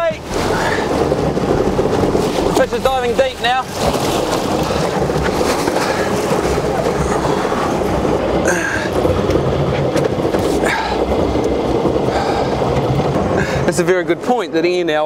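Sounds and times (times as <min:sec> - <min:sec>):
boat engine rumbling: 0:00.0 - 0:15.0
water rushing along hull: 0:00.0 - 0:15.0
wind on microphone: 0:00.0 - 0:15.0.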